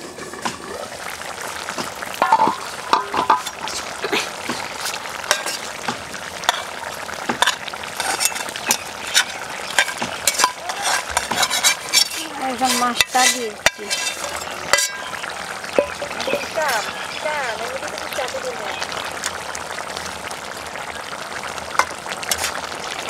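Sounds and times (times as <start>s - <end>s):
fish sizzling in a pan: 0.0s - 23.0s
metal spatula scraping pan: 2.2s - 3.9s, 4.8s - 5.7s, 7.3s - 15.2s, 22.2s - 22.6s.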